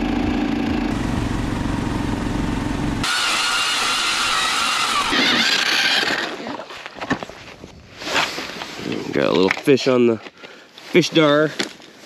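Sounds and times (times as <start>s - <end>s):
snow machine engine running: 0.0s - 6.1s
ice auger drilling high whine: 0.0s - 6.5s.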